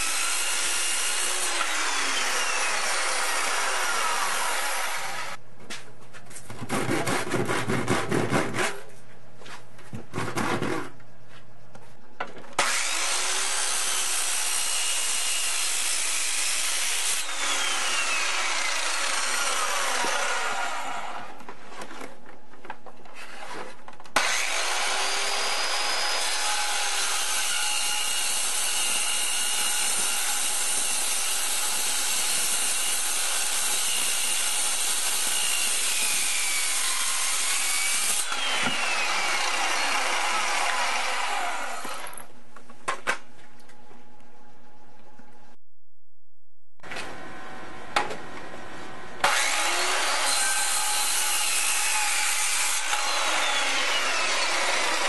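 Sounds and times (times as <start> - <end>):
saw cutting through wood: 0.0 - 5.4, 6.6 - 8.9, 12.6 - 21.4, 23.2 - 42.3, 49.2 - 55.0.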